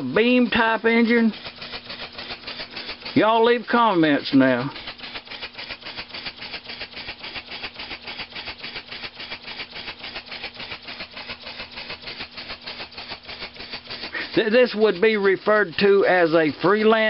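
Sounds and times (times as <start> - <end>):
model steam engine chuffing: 0.0 - 17.0.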